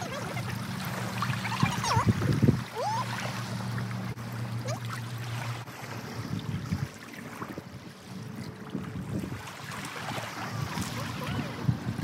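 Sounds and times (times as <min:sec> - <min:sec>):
wind noise: 0:01.6 - 0:02.7, 0:08.6 - 0:12.0.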